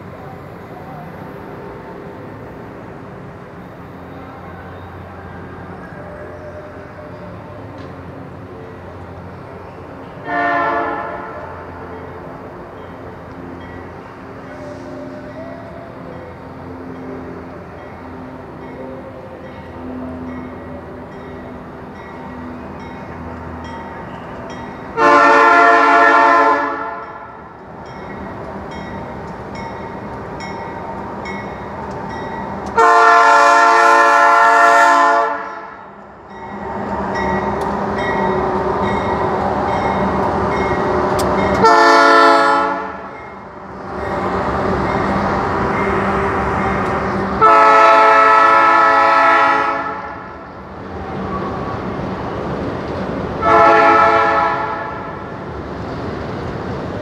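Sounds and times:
diesel engines rumbling: 0.0 - 57.0
train wheels rumbling: 0.0 - 57.0
locomotive air horn blasts: 10.2 - 11.7, 24.9 - 27.3, 32.8 - 35.8, 41.6 - 43.1, 47.4 - 50.4, 53.4 - 55.2.

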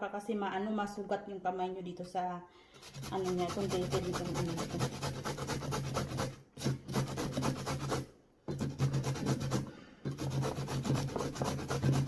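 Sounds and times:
carrot grating on metal grater: 2.8 - 12.0.

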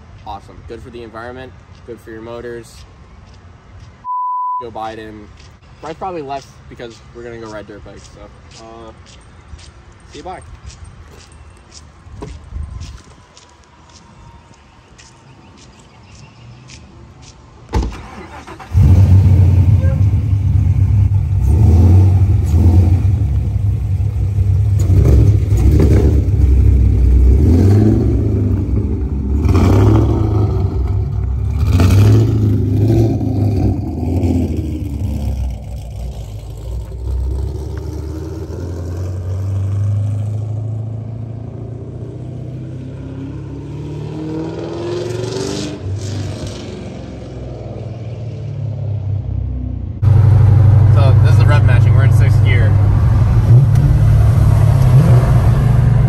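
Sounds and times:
car engine revving: 17.9 - 47.6, 50.0 - 56.0.

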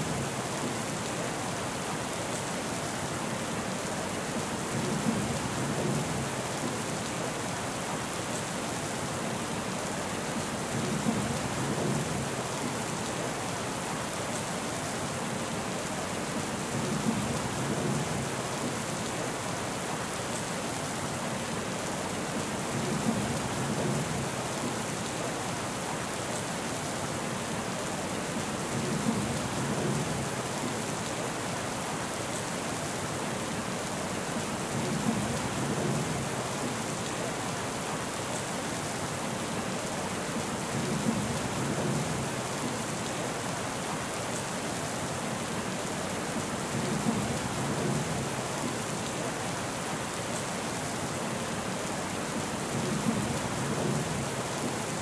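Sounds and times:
steady rain: 0.0 - 55.0.

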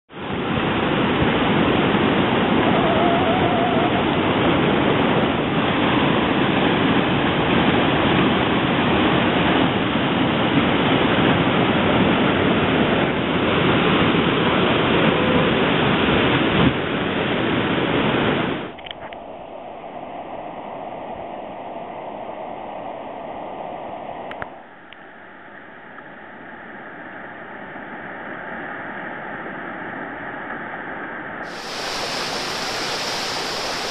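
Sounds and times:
whitewater rapids rushing: 31.4 - 33.9.

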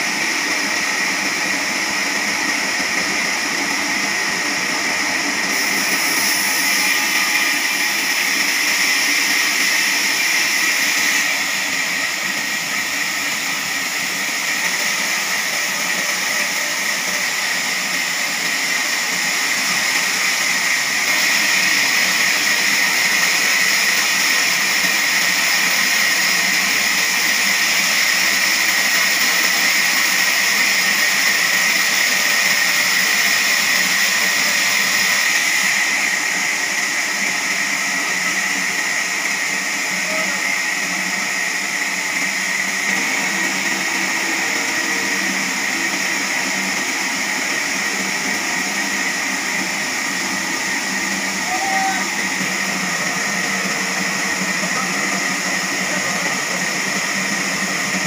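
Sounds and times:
band saw blade cutting log: 5.5 - 36.4.

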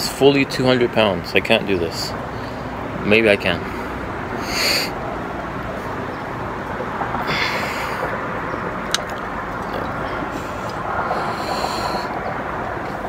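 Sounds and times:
steady background rumble: 0.0 - 13.0
hissing exhale: 3.7 - 5.0, 7.2 - 8.2, 10.3 - 12.3.

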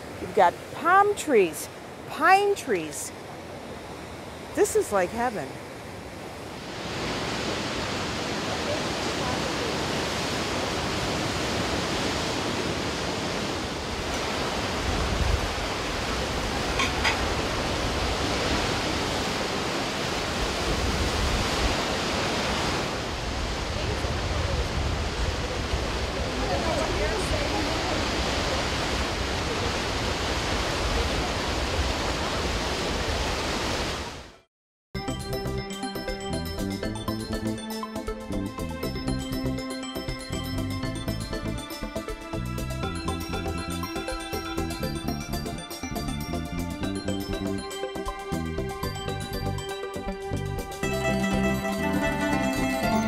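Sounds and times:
sea waves breaking over rocks: 0.0 - 34.2
music: 35.0 - 53.0.

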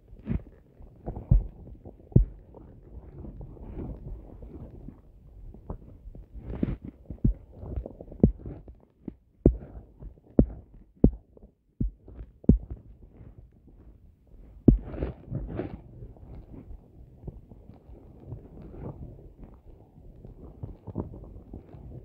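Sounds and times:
dull knocks and thumps: 2.2 - 2.4, 8.2 - 8.7, 9.4 - 11.2, 11.8 - 12.8, 14.7 - 15.1.

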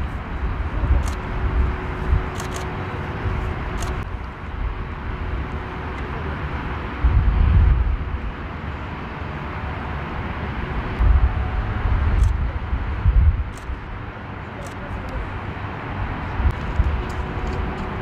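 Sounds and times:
low rumble: 0.0 - 8.9, 10.6 - 14.0.

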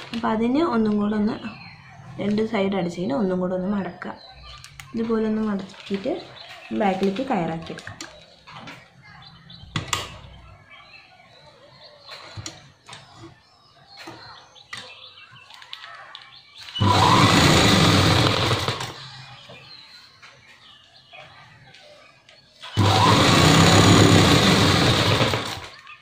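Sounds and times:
sewing machine stitching: 16.8 - 19.0, 22.7 - 25.7.

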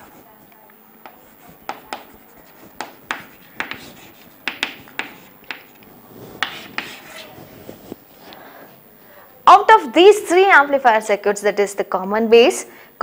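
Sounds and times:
chalk writing on a chalkboard: 0.0 - 8.0.

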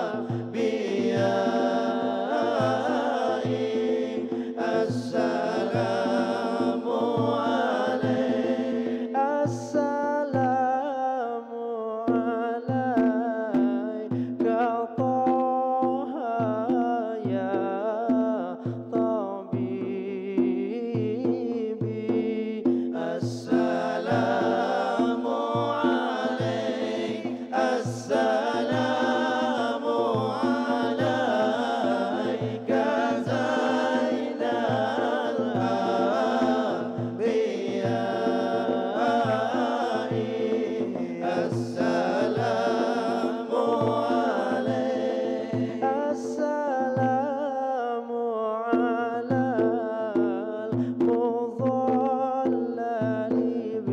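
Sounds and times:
man chanting into a microphone: 0.0 - 40.2.

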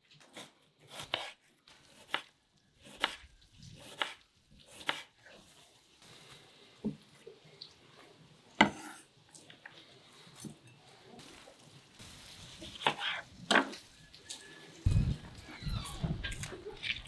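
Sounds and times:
low muffled rumble: 14.9 - 16.4.

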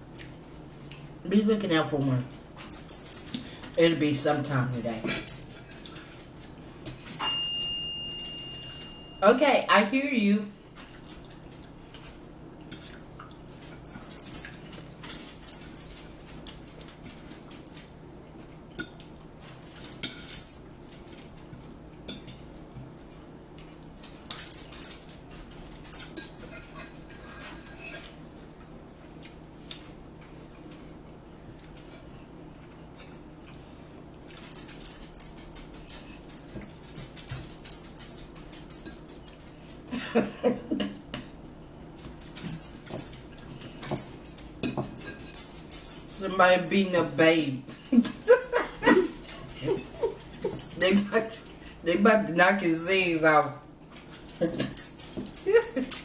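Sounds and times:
forks clinking on plates: 4.6 - 9.2, 12.0 - 17.9, 19.7 - 21.3, 22.1 - 22.5, 24.0 - 28.2, 42.2 - 51.8.

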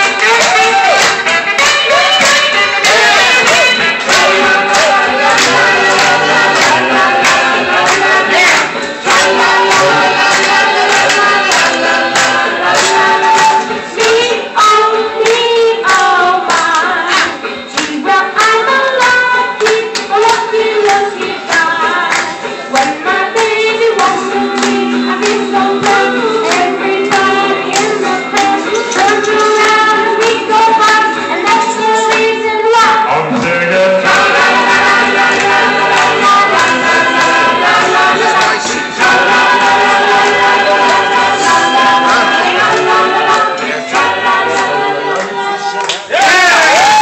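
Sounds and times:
instrumental accompaniment with beat: 0.0 - 47.0
boy singing into a microphone: 12.9 - 22.1, 22.7 - 33.7.

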